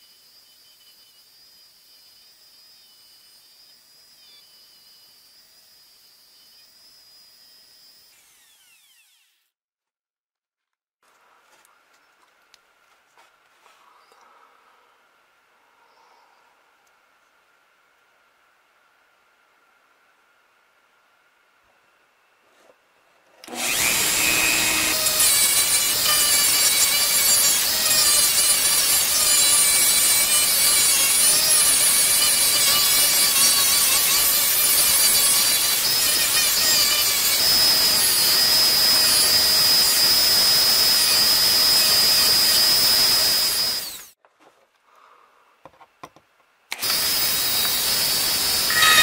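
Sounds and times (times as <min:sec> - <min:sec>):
rotary tool high whine: 0:00.0 - 0:09.6, 0:23.4 - 0:44.2, 0:46.7 - 0:49.0
rotary tool grinding metal: 0:23.4 - 0:44.2, 0:46.7 - 0:49.0.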